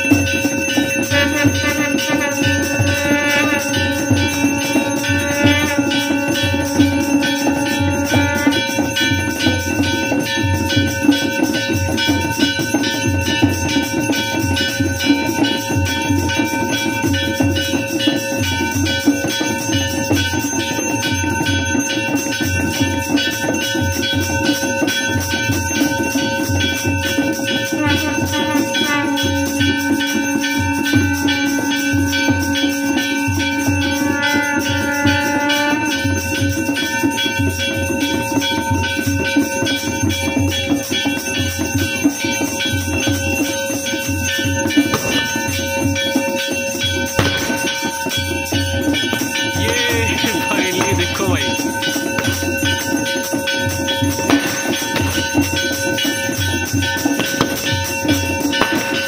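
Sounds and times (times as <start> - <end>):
jingling percussion: 0.0 - 59.0
sustained tones: 44.6 - 59.0
low drum beat: 47.0 - 59.0.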